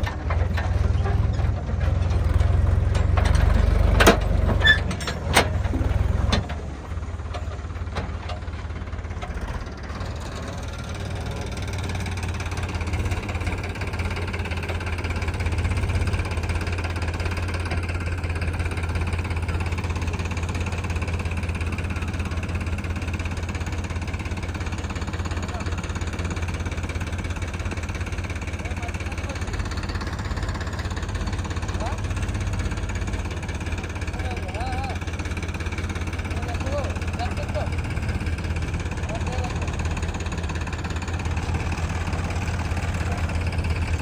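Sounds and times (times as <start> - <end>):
metal clanks of trolley: 0.0 - 6.6
diesel tractor engine: 0.0 - 44.0.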